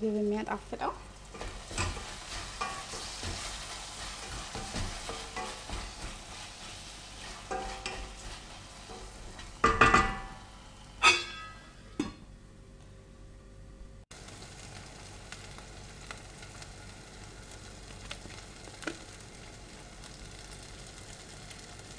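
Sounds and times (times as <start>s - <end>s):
meat sizzling in a pot: 0.0s - 11.1s, 14.1s - 21.9s
wooden spoon stirring and scraping: 1.2s - 9.7s.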